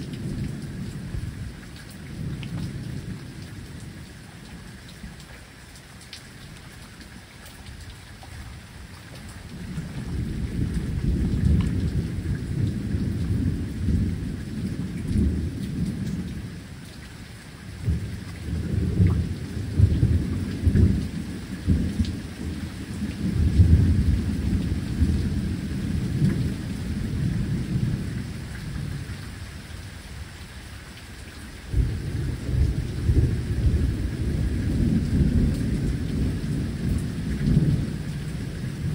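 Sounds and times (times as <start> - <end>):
steady rain: 0.0 - 38.9
thunder rumbling: 9.5 - 16.6, 17.7 - 29.2, 31.7 - 38.9.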